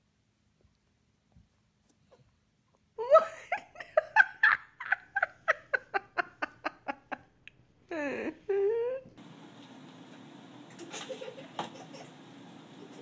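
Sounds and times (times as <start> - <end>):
high-pitched human laughter: 3.0 - 7.3, 10.9 - 12.1.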